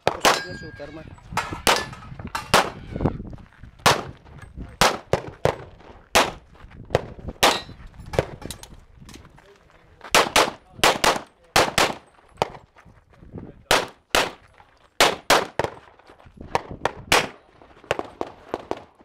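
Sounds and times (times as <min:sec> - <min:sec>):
pistol shots: 0:01.4 - 0:02.8, 0:03.8 - 0:04.2, 0:04.8 - 0:08.3, 0:10.1 - 0:12.6, 0:13.7 - 0:14.4, 0:15.0 - 0:15.8, 0:16.5 - 0:18.9.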